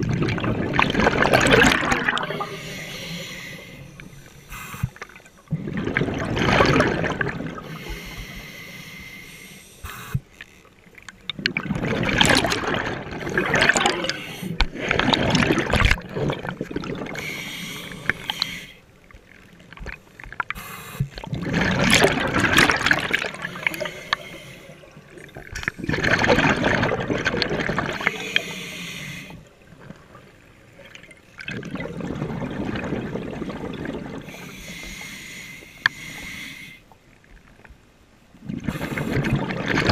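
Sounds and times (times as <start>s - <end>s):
gurgling exhaled bubbles: 0.0s - 3.3s, 5.5s - 7.8s, 11.4s - 17.4s, 21.2s - 24.0s, 24.8s - 28.5s, 29.8s - 34.4s, 38.4s - 39.9s.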